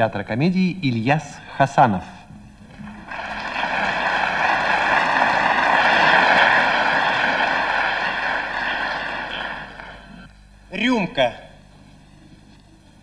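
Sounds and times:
audience applauding: 0:02.8 - 0:10.2.

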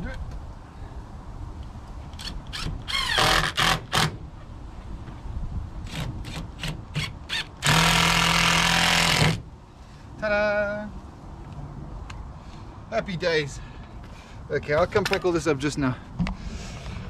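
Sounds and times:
cordless drill driving a screw: 0:02.2 - 0:04.2, 0:05.9 - 0:09.4.

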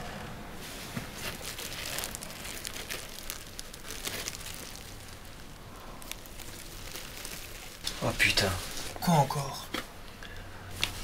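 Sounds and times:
packet crinkling and clicking: 0:01.2 - 0:09.0.

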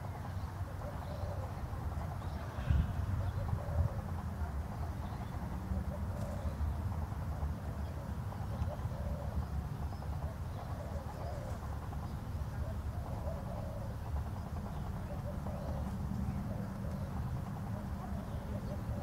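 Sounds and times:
soft cooing calls: 0:00.7 - 0:01.8, 0:02.4 - 0:05.0, 0:05.8 - 0:06.8, 0:07.9 - 0:11.8, 0:12.5 - 0:19.0.

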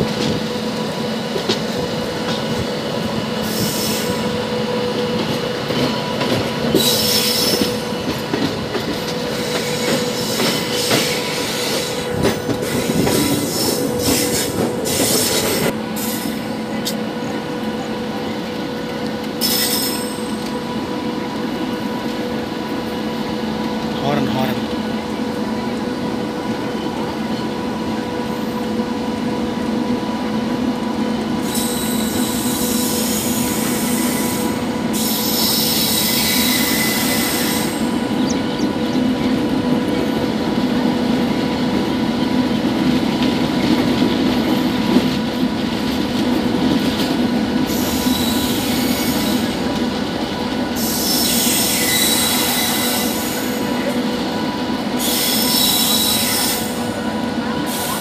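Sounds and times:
train wheels rumbling on rails: 0:00.0 - 0:58.0
shrill wheel squeal: 0:06.8 - 0:07.8, 0:19.4 - 0:20.3, 0:31.4 - 0:38.4, 0:47.7 - 0:49.4, 0:50.8 - 0:53.6, 0:55.0 - 0:56.8.

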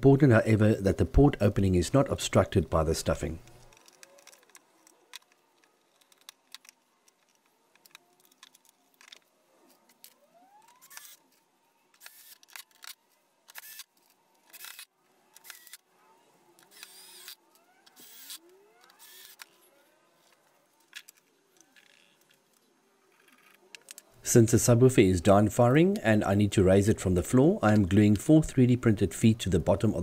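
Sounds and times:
cordless drill whirring: 0:12.0 - 0:12.6, 0:13.5 - 0:13.9, 0:14.5 - 0:15.8, 0:16.6 - 0:19.6.

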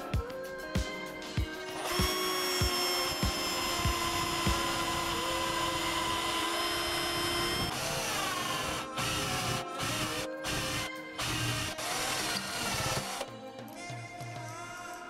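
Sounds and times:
electric drill boring into wood: 0:01.7 - 0:13.3.

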